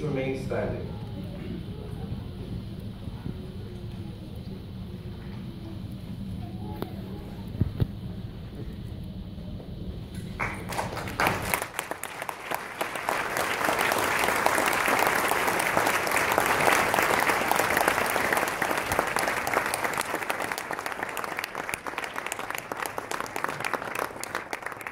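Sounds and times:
audience applauding: 0:10.4 - 0:24.9.

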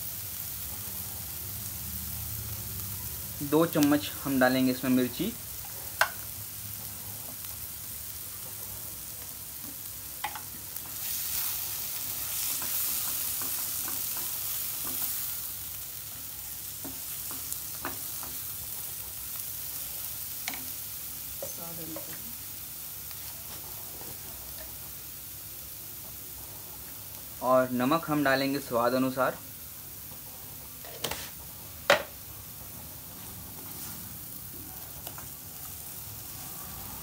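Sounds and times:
food sizzling in a pan: 0:00.0 - 0:37.0
spatula scraping and clicking on pan: 0:12.3 - 0:15.3, 0:30.8 - 0:32.1.

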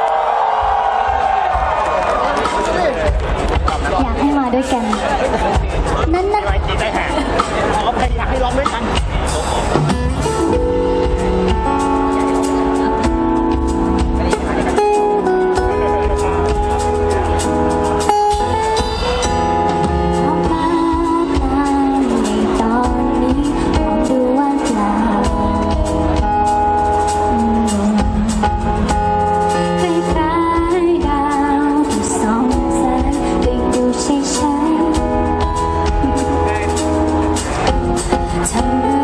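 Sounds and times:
drums: 0:00.0 - 0:39.0
acoustic guitar: 0:09.8 - 0:39.0
woman singing into microphone: 0:20.2 - 0:26.2, 0:27.2 - 0:36.4, 0:38.1 - 0:39.0.

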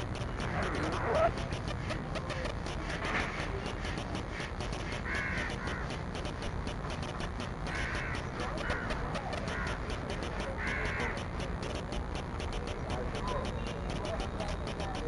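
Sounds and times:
fast even ticking: 0:00.0 - 0:15.0
crows cawing: 0:05.0 - 0:05.9, 0:07.7 - 0:09.9, 0:10.6 - 0:11.2.

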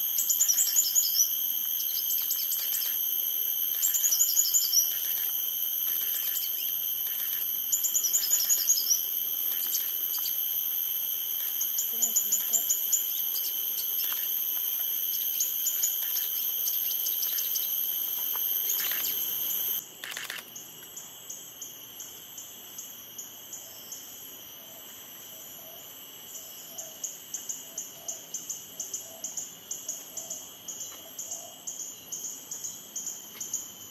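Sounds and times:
high insect drone: 0:00.0 - 0:33.9.

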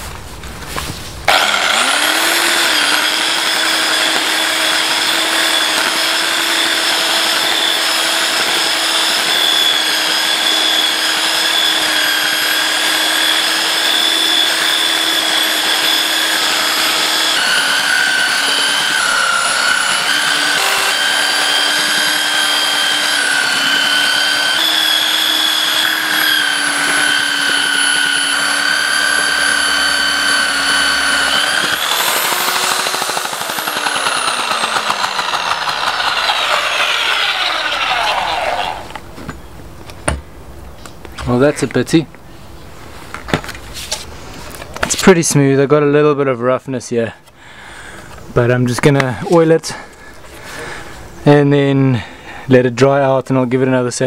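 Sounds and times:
electric belt sander whining: 0:01.3 - 0:39.1.

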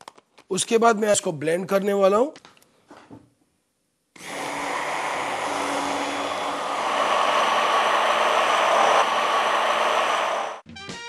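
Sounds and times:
stick blender running in glass bowl: 0:04.2 - 0:10.6.

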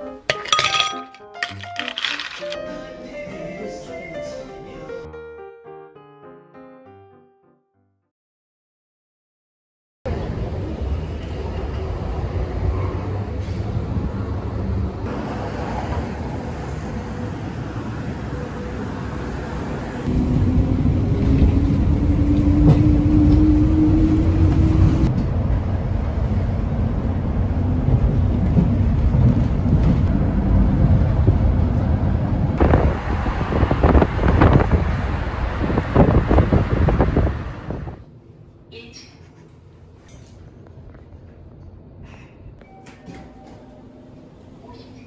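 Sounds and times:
bus engine and road rumble: 0:10.1 - 0:38.9
street traffic: 0:10.1 - 0:38.9.

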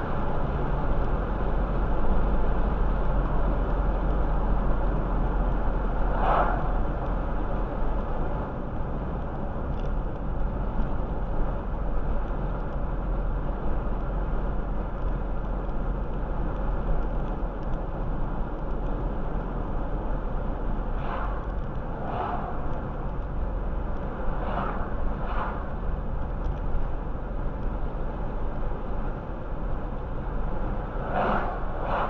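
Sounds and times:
road and tyre noise inside car: 0:00.0 - 0:32.0
passing car swishing: 0:05.9 - 0:07.4, 0:21.0 - 0:22.9, 0:24.3 - 0:25.8, 0:30.8 - 0:32.0.

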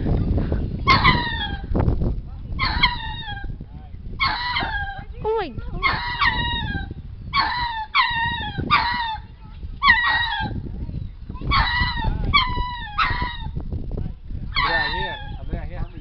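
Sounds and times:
lemurs yelping cries: 0:00.8 - 0:01.7, 0:02.6 - 0:03.6, 0:04.2 - 0:05.1, 0:05.8 - 0:10.6, 0:11.4 - 0:13.6, 0:14.5 - 0:15.4.

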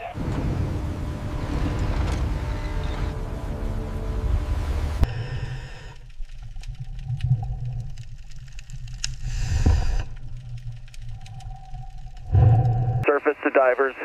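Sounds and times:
deep underwater rumble: 0:00.2 - 0:13.0
underwater clicks and ticks: 0:05.0 - 0:13.0.

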